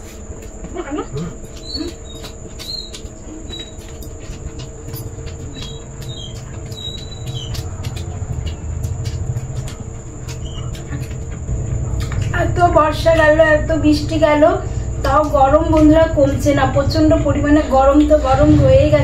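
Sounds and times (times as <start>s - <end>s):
chewing and mouth clicks: 0.1s - 12.4s
low rumble: 4.3s - 19.0s.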